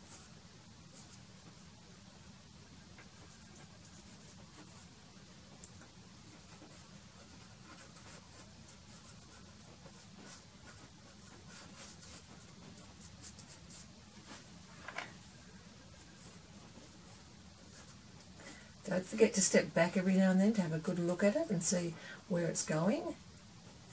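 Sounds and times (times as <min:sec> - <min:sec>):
steady low hum: 0:00.0 - 0:23.9
pastel stick scratching on paper: 0:05.6 - 0:14.6.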